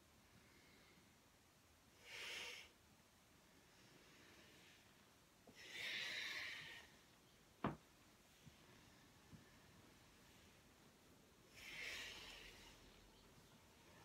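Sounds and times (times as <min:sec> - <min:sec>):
person breathing: 0:03.4 - 0:07.1, 0:11.4 - 0:14.0.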